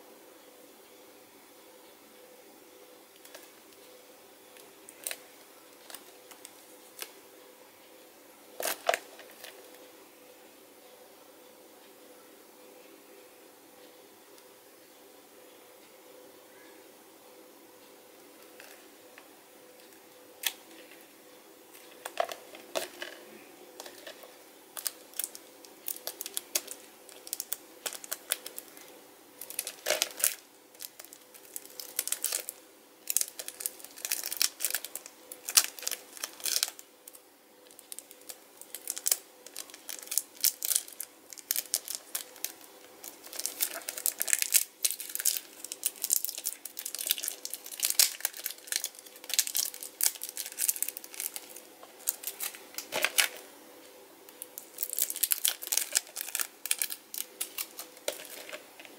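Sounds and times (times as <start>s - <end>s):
plastic shrink wrap crinkling: 4.6s - 7.2s, 8.6s - 9.7s, 21.7s - 53.5s, 54.4s - 58.9s.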